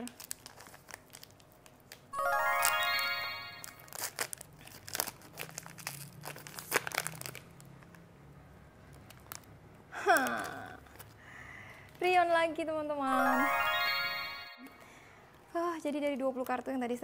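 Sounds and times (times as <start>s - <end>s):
paper wrapper crinkling and tearing: 0.0s - 2.8s, 3.6s - 8.1s, 8.9s - 11.2s.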